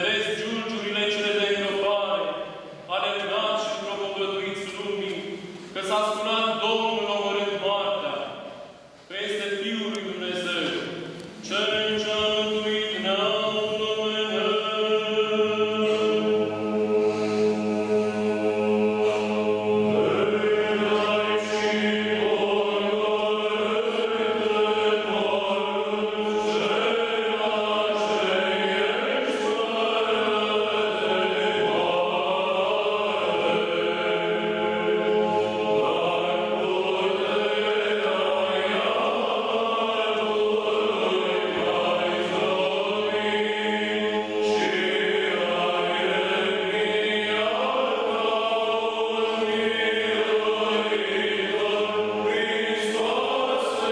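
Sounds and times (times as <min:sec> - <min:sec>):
voices chanting over drone note: 0:11.9 - 0:53.9.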